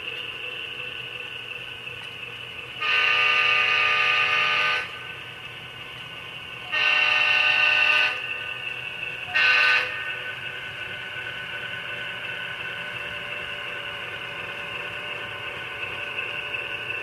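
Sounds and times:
steady faint hum: 0:00.0 - 0:17.0
model train horn blasts: 0:02.8 - 0:05.0, 0:06.7 - 0:08.3, 0:09.3 - 0:10.1.

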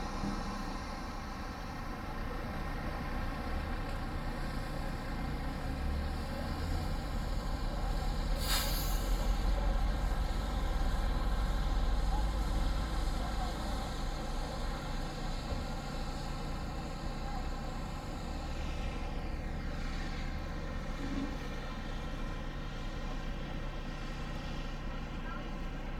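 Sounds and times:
bus engine rumbling: 0:00.0 - 0:25.9
air brake hiss: 0:08.3 - 0:09.6.

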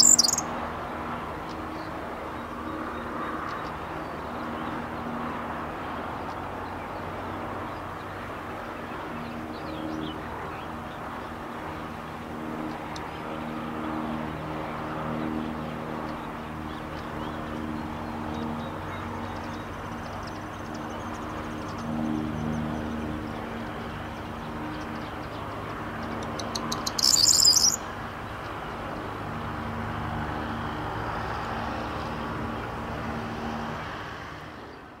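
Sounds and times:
bird song jangling rattle: 0:00.0 - 0:00.4, 0:26.3 - 0:27.8.

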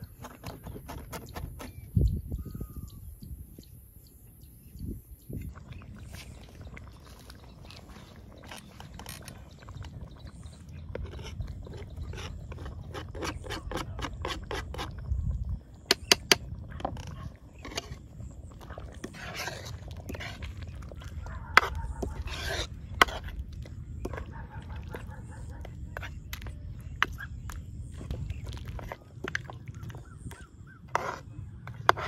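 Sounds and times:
scraping and tapping on plastic board: 0:00.0 - 0:01.9, 0:10.9 - 0:15.0, 0:15.9 - 0:18.0, 0:28.7 - 0:32.0
ladle stirring in steel pan: 0:17.6 - 0:24.2.

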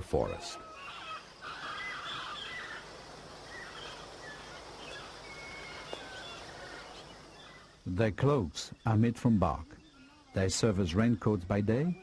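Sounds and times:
faint bird chirps: 0:00.0 - 0:12.0
steady background hiss: 0:00.0 - 0:12.0.

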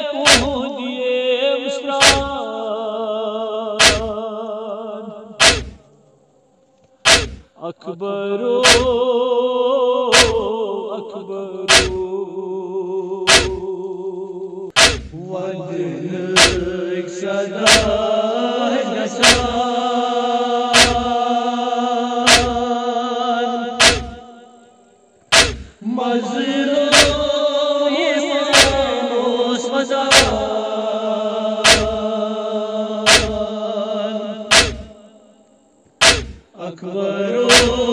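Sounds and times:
men chanting a lament: 0:00.0 - 0:05.9, 0:07.1 - 0:24.4, 0:25.3 - 0:35.2, 0:36.0 - 0:37.9
loud hard beat: 0:00.3 - 0:00.6, 0:02.0 - 0:02.3, 0:03.8 - 0:04.2, 0:05.4 - 0:05.8, 0:07.1 - 0:07.4, 0:08.6 - 0:08.9, 0:10.2 - 0:10.5, 0:11.7 - 0:12.0, 0:13.3 - 0:13.6, 0:14.8 - 0:15.2, 0:16.4 - 0:16.7, 0:17.7 - 0:18.0, 0:19.2 - 0:19.6, 0:20.8 - 0:21.1, 0:22.3 - 0:22.6, 0:23.8 - 0:24.2, 0:25.3 - 0:25.8, 0:27.0 - 0:27.2, 0:28.6 - 0:28.9, 0:30.1 - 0:30.4, 0:31.6 - 0:32.0, 0:33.1 - 0:33.4, 0:34.5 - 0:34.9, 0:36.0 - 0:36.4, 0:37.5 - 0:37.8.

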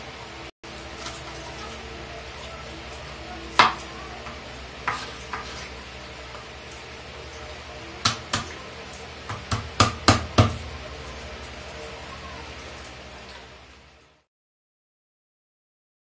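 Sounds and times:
knife chopping on wooden board: 0:09.3 - 0:10.6.

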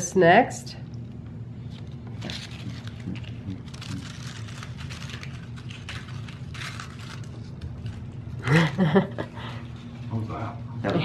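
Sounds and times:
steady low hum: 0:00.0 - 0:11.0
potato chips crackling: 0:01.7 - 0:10.1.

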